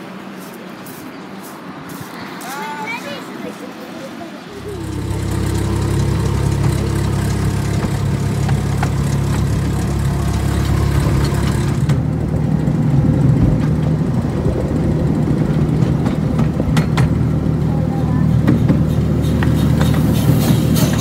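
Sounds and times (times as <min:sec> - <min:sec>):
miniature train engine drone: 0:04.4 - 0:21.0.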